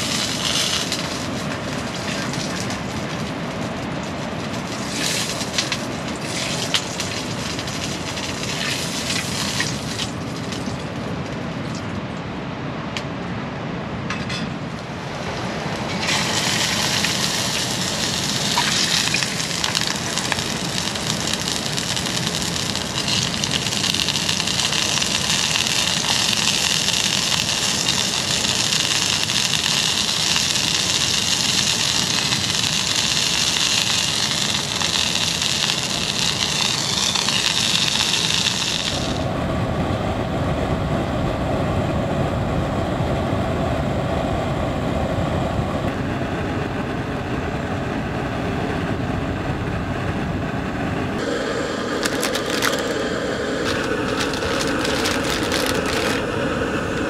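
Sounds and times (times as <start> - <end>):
meat sizzling in oil: 0.0 - 10.6, 15.9 - 39.2, 51.2 - 57.0
pan contents bubbling: 0.0 - 11.1, 15.1 - 39.3, 51.2 - 57.0.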